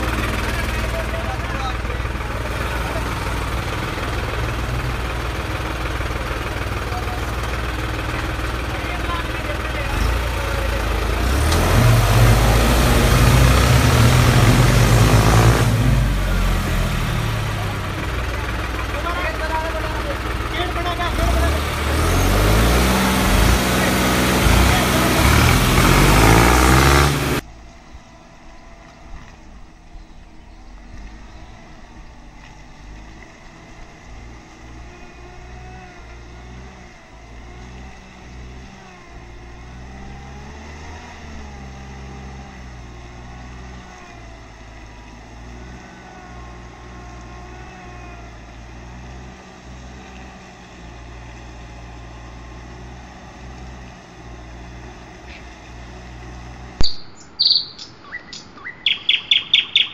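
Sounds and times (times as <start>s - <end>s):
birds chirping: 0.0s - 33.0s, 56.8s - 59.9s.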